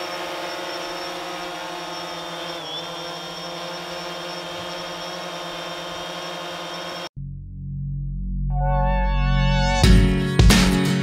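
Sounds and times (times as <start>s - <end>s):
drone hovering with steady whine: 0.0s - 7.1s.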